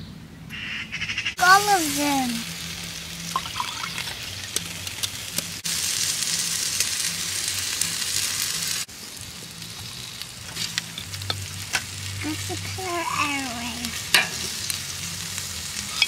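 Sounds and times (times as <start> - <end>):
food sizzling on a grill: 1.4 - 16.0.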